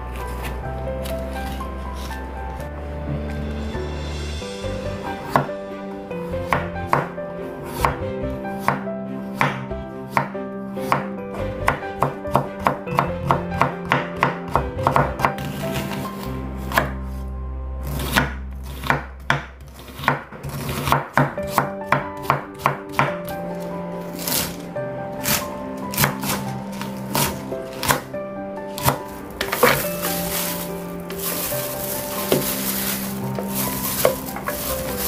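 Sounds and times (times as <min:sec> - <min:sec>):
knife chopping on cutting board: 0:17.9 - 0:23.1, 0:25.2 - 0:28.0, 0:28.8 - 0:35.0.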